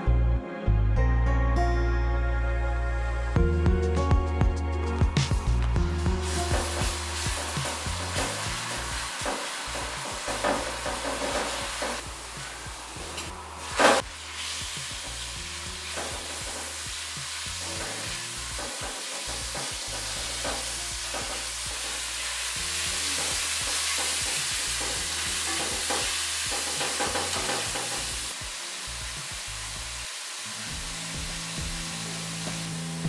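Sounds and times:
food sizzling in hot oil: 0:05.3 - 0:33.0
spatula scraping a wok: 0:06.2 - 0:28.3.

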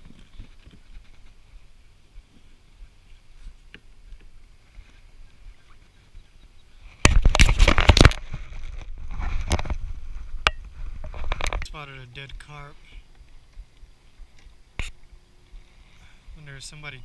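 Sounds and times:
rubbing and rustling on camera: 0:00.0 - 0:03.7, 0:06.9 - 0:11.7.

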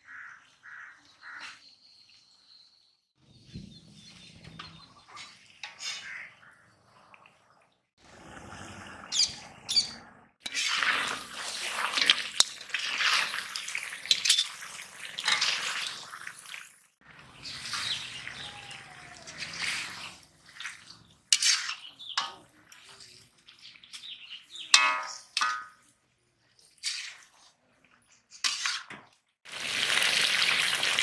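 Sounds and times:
metal spatula scraping pan: 0:10.4 - 0:13.4, 0:19.4 - 0:23.0, 0:26.7 - 0:27.5, 0:28.3 - 0:29.0
curry sizzling in a pan: 0:29.5 - 0:31.0.

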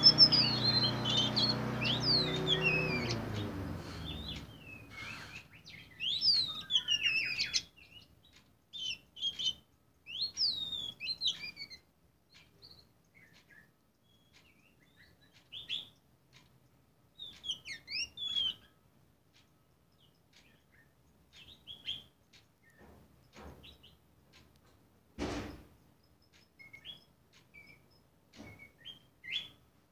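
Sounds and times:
bird whistling and chirping: 0:00.0 - 0:08.1, 0:08.8 - 0:11.8, 0:17.2 - 0:18.7, 0:26.6 - 0:29.6
dull knock: 0:25.2 - 0:25.7.

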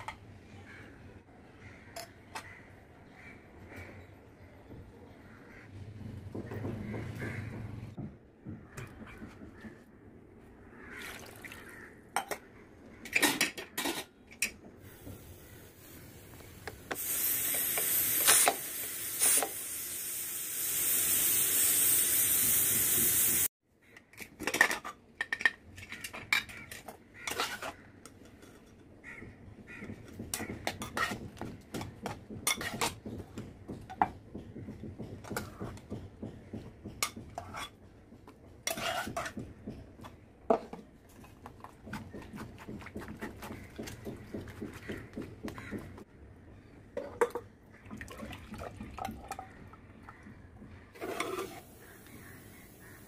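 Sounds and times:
pressure cooker steam hissing: 0:16.9 - 0:23.5
spoon scraping mesh strainer: 0:51.0 - 0:51.7.

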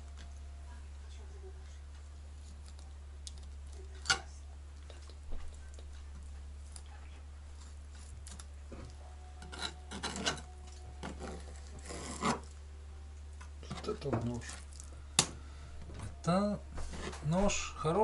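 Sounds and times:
low steady hum: 0:00.0 - 0:18.0
knife scraping and clicking: 0:09.4 - 0:12.5.

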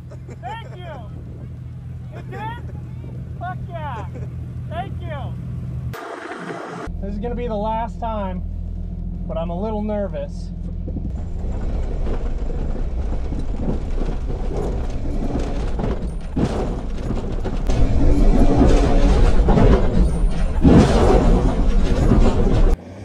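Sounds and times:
body and suspension rattling: 0:00.0 - 0:05.9, 0:06.9 - 0:22.8
car engine running under load: 0:00.0 - 0:22.8.

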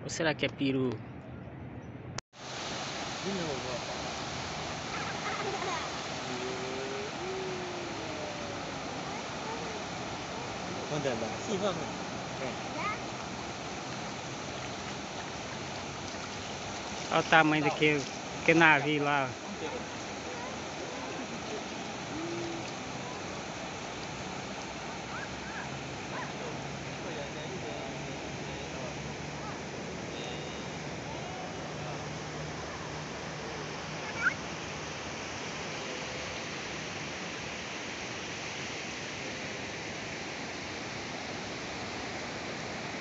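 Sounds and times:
ocean surf breaking: 0:02.4 - 0:38.3.

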